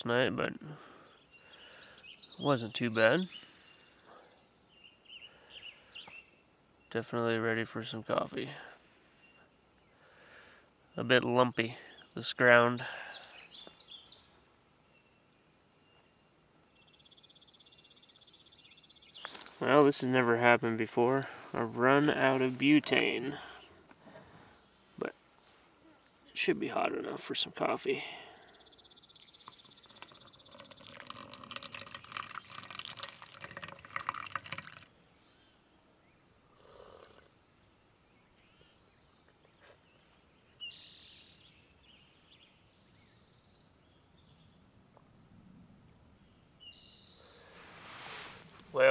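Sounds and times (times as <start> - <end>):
faint chirps: 28.0 - 33.2, 46.7 - 48.9
hot water pouring onto coffee grounds: 29.2 - 34.9.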